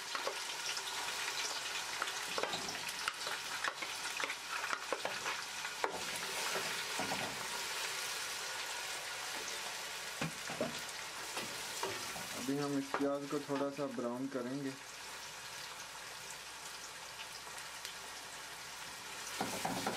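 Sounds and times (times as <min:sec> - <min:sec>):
onions sizzling in hot oil: 0:00.0 - 0:19.9
wooden spoon scraping a pan: 0:02.1 - 0:08.1.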